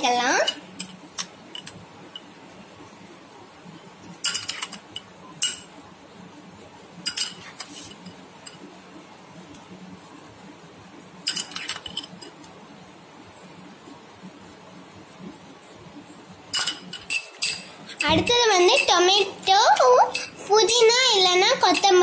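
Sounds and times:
metal spoon clinking on glass bowl: 0:16.5 - 0:19.0.

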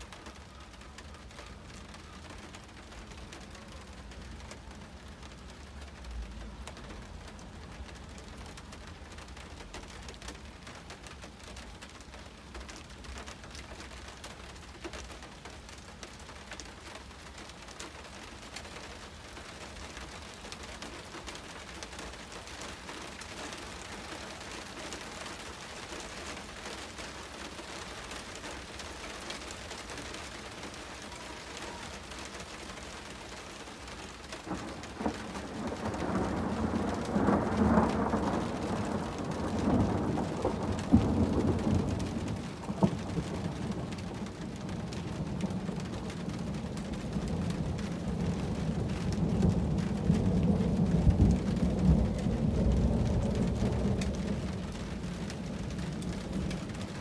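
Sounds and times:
steady rain falling: 0:00.0 - 0:57.0
rolling thunder: 0:34.4 - 0:57.0.

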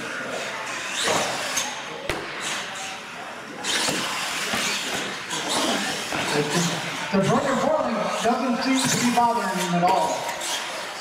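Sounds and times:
toy truck motor revving: 0:00.0 - 0:01.8.

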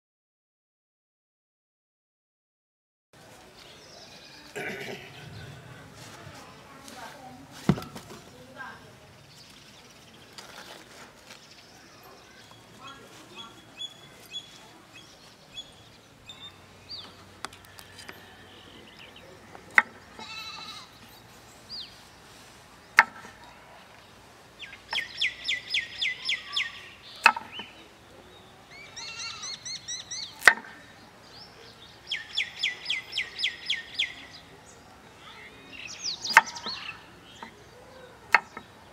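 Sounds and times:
cleaver chopping on wooden board: 0:23.0 - 0:23.2, 0:30.4 - 0:30.7.

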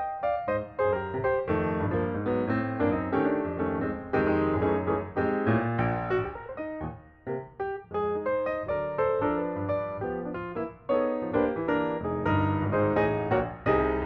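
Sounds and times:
piano melody over chords: 0:00.0 - 0:14.0.

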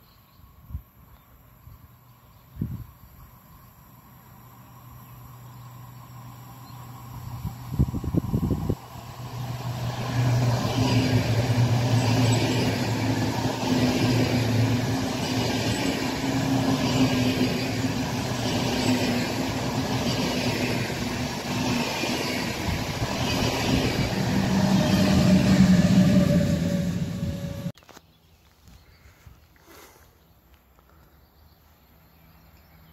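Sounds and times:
train hum: 0:00.0 - 0:27.8
train wheels rumbling on rail: 0:05.2 - 0:27.8.

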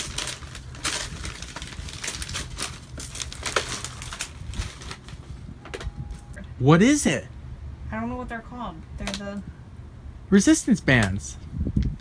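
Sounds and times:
wrapping paper crinkling: 0:00.0 - 0:05.3.

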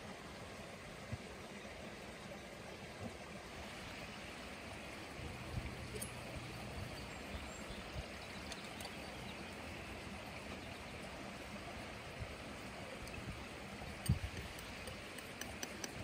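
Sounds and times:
outdoor background hiss: 0:00.0 - 0:16.0
faint clicks: 0:08.4 - 0:09.2, 0:14.0 - 0:16.0.

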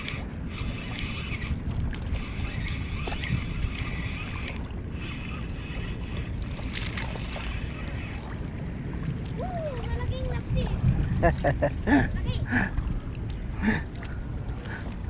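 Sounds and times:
fishing reel whirring: 0:00.0 - 0:08.4
wind buffeting microphone: 0:00.0 - 0:15.0
brief rustle: 0:06.6 - 0:07.5.

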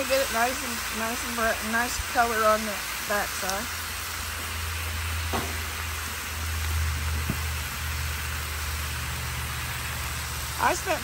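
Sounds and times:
meat sizzling on griddle: 0:00.0 - 0:11.0.

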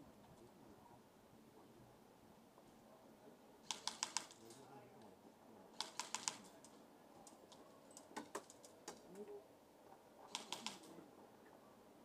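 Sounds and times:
airsoft gunfire clicks: 0:03.7 - 0:04.4, 0:05.8 - 0:06.5, 0:10.3 - 0:10.9.

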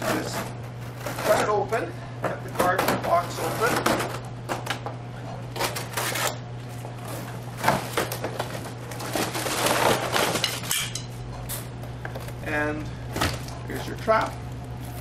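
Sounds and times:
cardboard scraping and rustling: 0:07.0 - 0:10.5.

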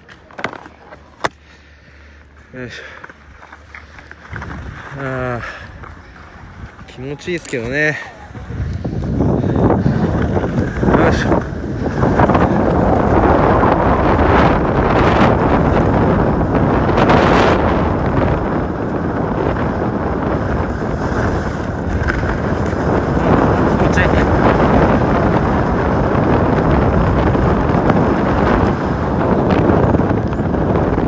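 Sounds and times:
skis scraping on hard snow: 0:02.6 - 0:15.8, 0:19.0 - 0:25.6
wind on microphone: 0:04.2 - 0:31.0.

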